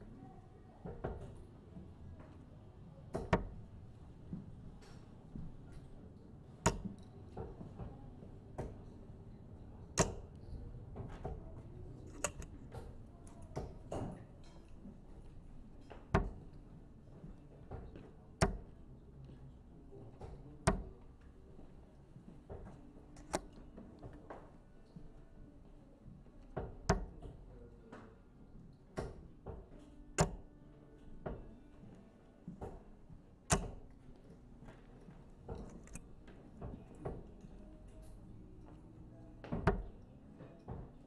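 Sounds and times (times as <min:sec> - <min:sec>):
darts striking dartboard: 0:03.2 - 0:03.6, 0:06.6 - 0:07.0, 0:10.0 - 0:10.3, 0:16.1 - 0:16.5, 0:18.4 - 0:18.7, 0:20.6 - 0:21.0, 0:26.8 - 0:27.3, 0:30.2 - 0:30.4, 0:33.5 - 0:33.9, 0:39.5 - 0:40.0.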